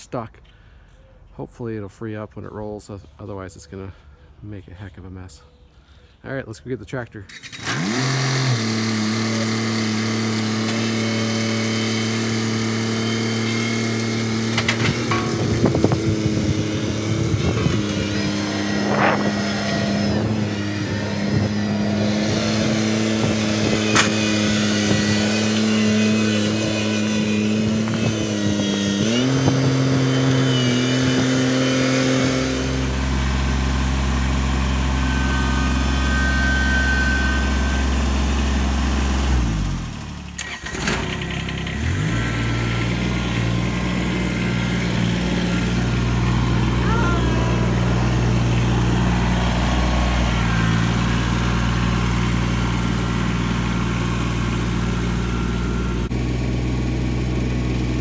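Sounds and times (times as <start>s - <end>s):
tractor diesel engine running: 6.3s - 58.0s.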